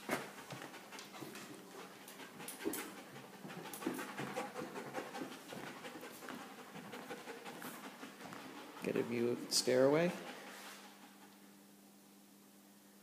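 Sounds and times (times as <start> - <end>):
footsteps on hardwood floor: 0.0 - 9.3
dog panting: 0.0 - 11.6.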